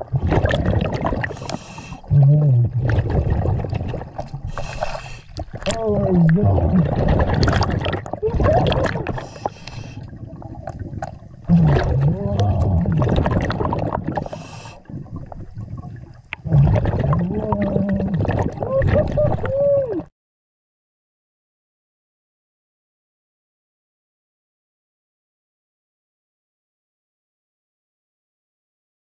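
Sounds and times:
low underwater rumble: 0.0 - 20.1.

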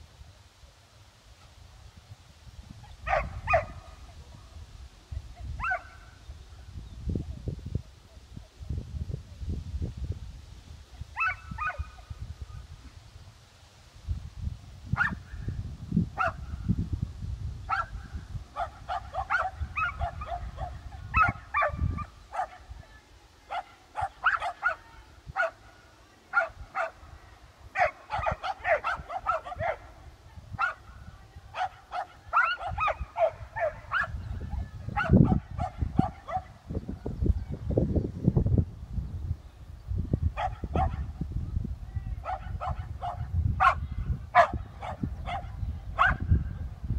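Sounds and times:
dog barking: 3.0 - 3.9, 5.6 - 6.0, 11.2 - 11.9, 15.0 - 15.2, 16.2 - 16.4, 17.7 - 18.0, 18.6 - 22.7, 23.5 - 24.8, 25.4 - 25.6, 26.3 - 27.0, 27.8 - 29.9, 30.6 - 30.8, 31.6 - 34.2, 35.0 - 36.6, 40.4 - 41.1, 42.2 - 46.3.

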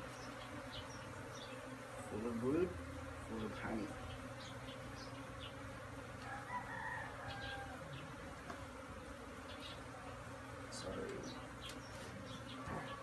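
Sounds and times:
bees buzzing: 0.0 - 13.0
rooster crowing: 6.2 - 8.1, 12.5 - 13.0.

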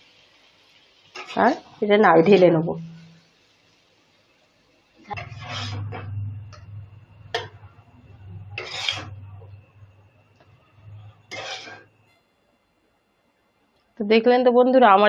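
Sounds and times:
spatula scraping a pan: 1.1 - 1.6, 5.0 - 9.6, 10.5 - 12.0.

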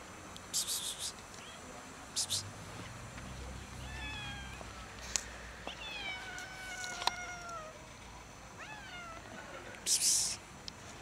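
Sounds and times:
cat meowing: 3.8 - 4.6, 5.7 - 7.8, 8.6 - 9.2.

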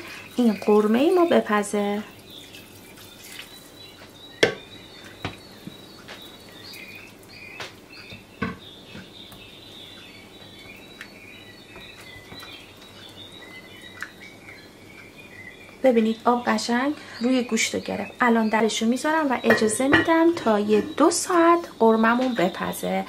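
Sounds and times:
sharp knocks on pot: 4.4 - 4.6.

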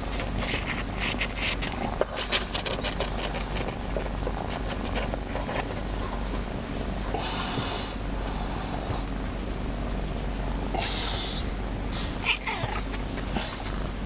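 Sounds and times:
cat purring: 0.5 - 5.9.

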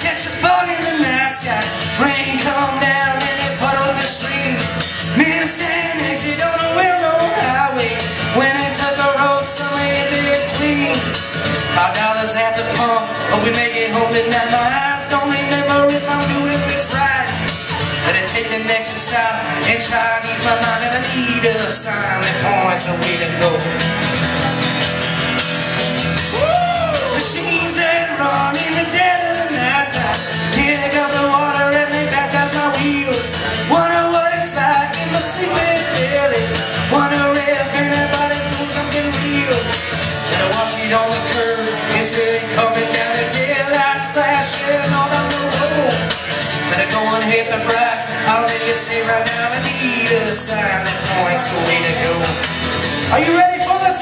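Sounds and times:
man singing: 0.0 - 23.9, 26.2 - 54.0
strummed acoustic guitar: 0.0 - 54.0.

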